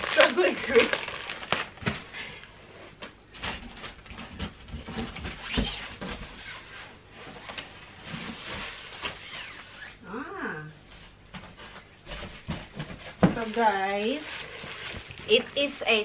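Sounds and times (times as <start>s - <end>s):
plastic rustling: 0.0s - 10.0s, 10.9s - 16.0s
cardboard scraping: 3.4s - 10.0s.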